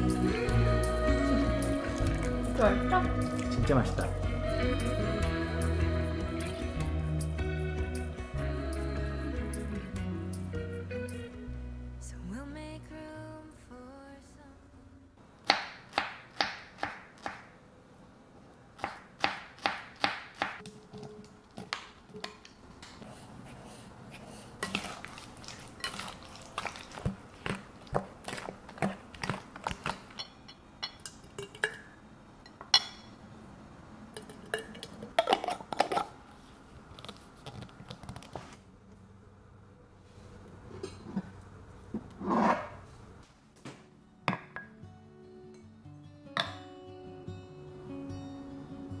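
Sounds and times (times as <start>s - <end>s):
wooden spoons stirring fruit: 20.6s - 30.3s
clinks against glass bowls: 30.1s - 33.2s.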